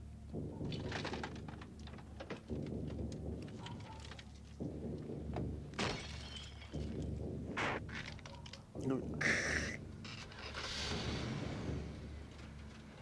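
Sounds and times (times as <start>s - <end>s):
clicks and knocks of glass and metal: 0.3s - 8.8s.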